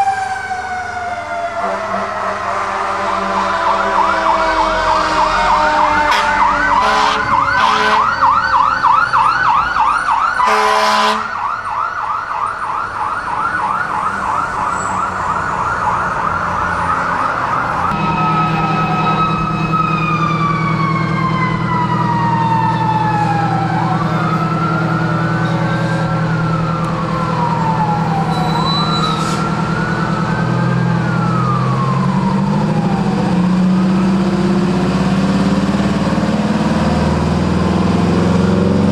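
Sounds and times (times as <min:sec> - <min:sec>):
fire engine warbling siren: 0:00.0 - 0:38.9
slow winding siren: 0:00.0 - 0:38.9
fire engine horn blasts: 0:01.5 - 0:08.4, 0:10.4 - 0:11.5, 0:17.9 - 0:20.6, 0:28.0 - 0:30.4
truck engine running: 0:17.7 - 0:38.9.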